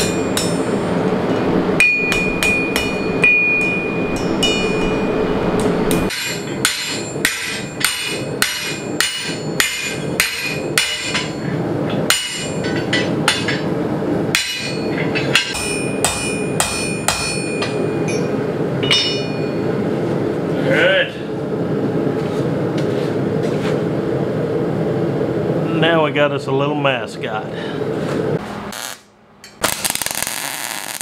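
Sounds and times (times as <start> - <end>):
gas forge rushing: 0.0 - 16.3
hammer striking steel on anvil: 0.0 - 19.7.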